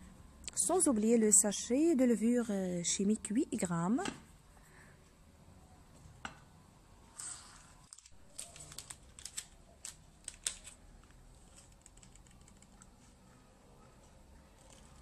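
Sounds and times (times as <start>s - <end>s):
paper sachet crinkling: 7.2s - 13.1s.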